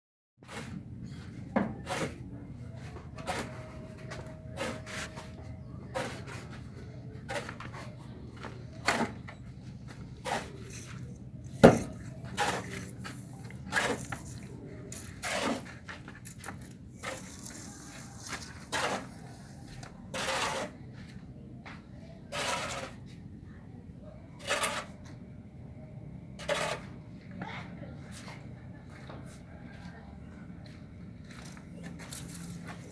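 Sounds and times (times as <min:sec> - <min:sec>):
shovel scraping concrete floor: 0:00.4 - 0:00.8, 0:01.8 - 0:02.2, 0:03.2 - 0:06.6, 0:07.3 - 0:07.9, 0:08.8 - 0:09.3, 0:10.2 - 0:20.8, 0:22.3 - 0:23.0, 0:24.4 - 0:25.0, 0:26.4 - 0:26.9.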